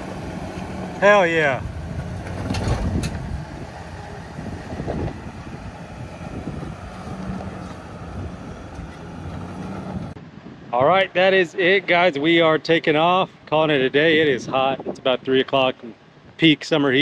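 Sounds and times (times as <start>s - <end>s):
truck engine running low: 0.0s - 10.2s
wind buffeting microphone: 1.4s - 11.2s.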